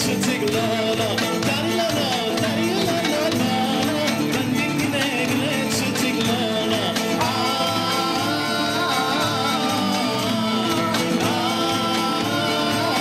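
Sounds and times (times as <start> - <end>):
belly dance music: 0.0 - 13.0
person singing long wavering notes: 7.2 - 13.0.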